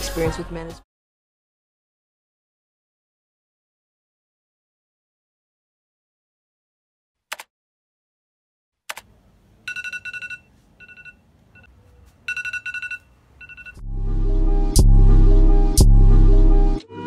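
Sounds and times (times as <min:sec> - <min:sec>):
trilling electronic ringtone: 0:09.7 - 0:11.7, 0:12.3 - 0:13.8
hip-hop beat with heavy bass: 0:14.0 - 0:16.8.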